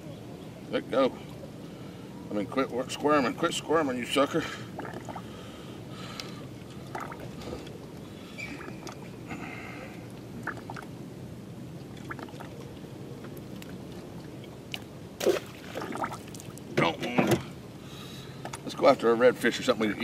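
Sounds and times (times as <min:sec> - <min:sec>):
water lapping against boat hull: 0:04.4 - 0:09.2, 0:10.1 - 0:10.9, 0:11.8 - 0:17.5.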